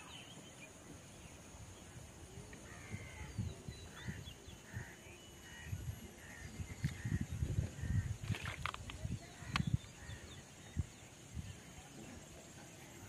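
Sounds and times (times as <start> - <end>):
bird chirps: 0.0 - 1.8.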